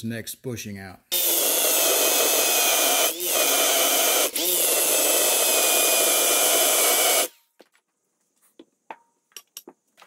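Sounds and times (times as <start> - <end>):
electric drill whining: 1.1 - 7.4.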